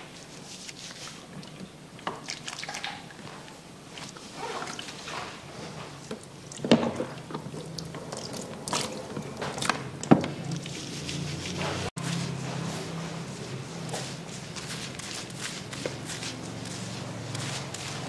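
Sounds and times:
wet hair squishing: 0:00.4 - 0:03.3, 0:03.9 - 0:12.4, 0:13.8 - 0:18.0
shower sprayer rinsing hair: 0:14.0 - 0:18.0.

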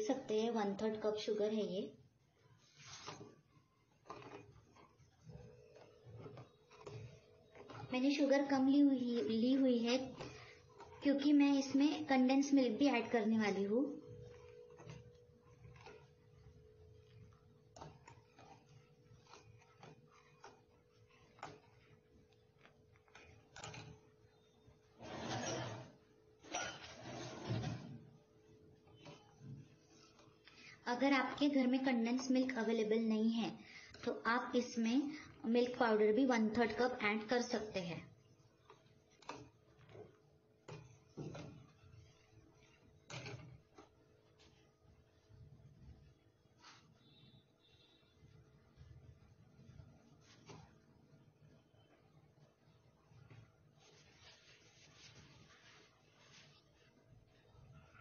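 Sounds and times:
spoon scraping metal pan: 0:23.4 - 0:28.1.

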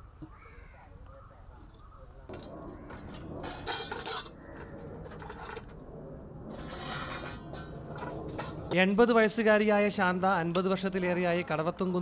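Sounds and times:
metal dishes clattering: 0:02.3 - 0:05.7, 0:06.5 - 0:08.8.

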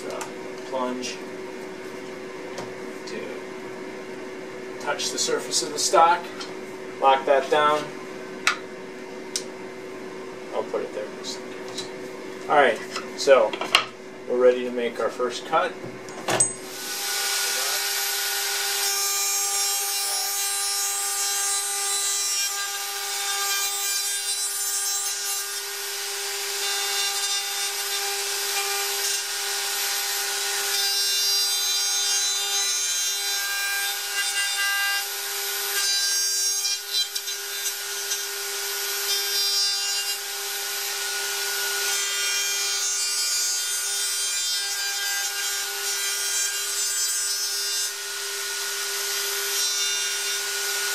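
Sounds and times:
router whining: 0:16.4 - 0:36.0
router cutting wood hiss: 0:16.6 - 0:23.6.

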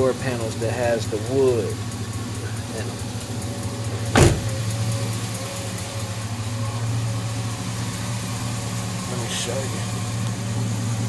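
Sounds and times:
engine idling: 0:00.0 - 0:11.0
sharp knock: 0:04.2 - 0:04.6.

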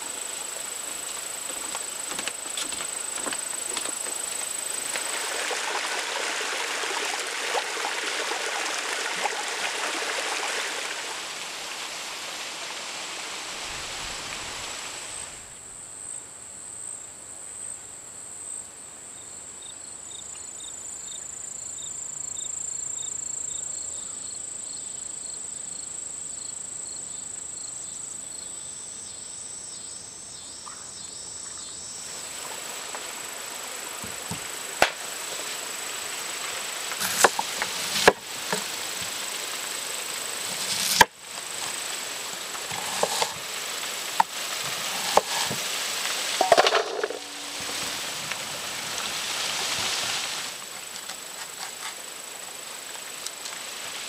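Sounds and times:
rushing hiss: 0:00.0 - 0:15.5, 0:32.1 - 0:54.0
insect chirp: 0:00.0 - 0:54.0
insects high buzz: 0:00.0 - 0:54.0.

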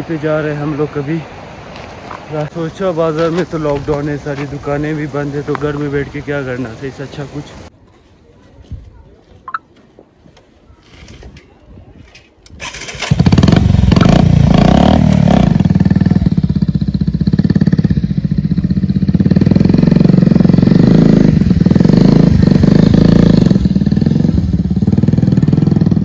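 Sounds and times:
motorcycle engine starting and running: 0:12.5 - 0:26.0.

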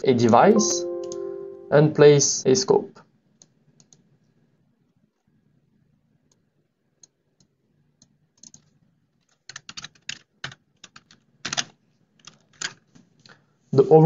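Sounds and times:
typing on computer keyboard: 0:08.3 - 0:12.9.

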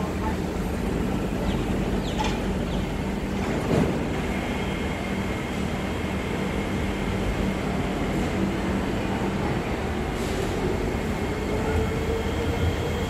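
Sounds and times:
train humming at platform: 0:00.0 - 0:13.0.

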